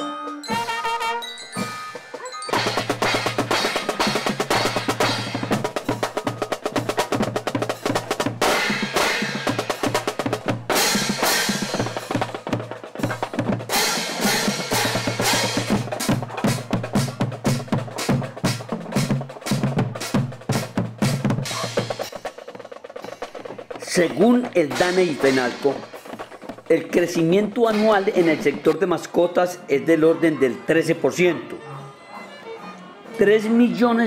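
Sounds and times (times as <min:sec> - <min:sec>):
bass drum beat: 0:02.5 - 0:22.3, 0:23.1 - 0:28.8
snare drum strokes: 0:02.5 - 0:28.9.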